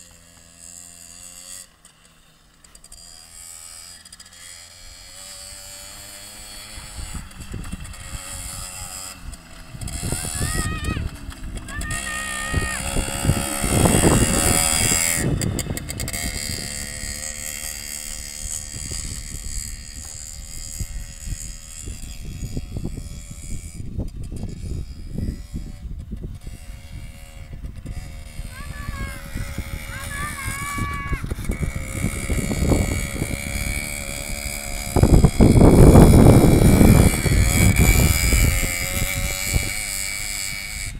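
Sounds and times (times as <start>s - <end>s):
moped engine running: 0.0s - 40.9s
wind buffeting microphone: 6.5s - 40.9s.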